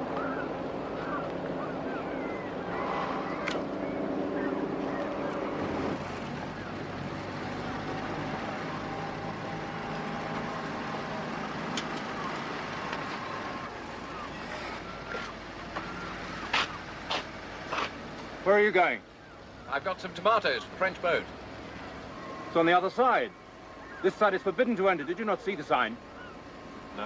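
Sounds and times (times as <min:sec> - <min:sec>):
seagull cries: 0:00.0 - 0:06.8, 0:13.2 - 0:16.9, 0:23.7 - 0:24.2, 0:26.1 - 0:26.5
car engine running: 0:00.0 - 0:27.0
engine hum: 0:00.0 - 0:27.0
water noise: 0:00.0 - 0:27.0
wind: 0:00.0 - 0:27.0.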